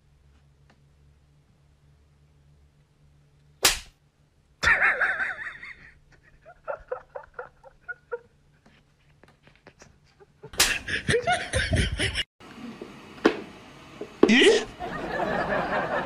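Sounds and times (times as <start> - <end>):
sharp smack: 3.6 - 4.0, 10.6 - 10.8
person laughing: 4.6 - 8.4, 9.7 - 12.3, 14.2 - 16.0.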